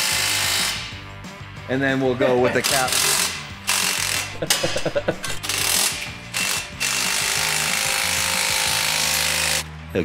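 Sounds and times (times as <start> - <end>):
cordless power tool driving fastener: 2.6 - 9.6.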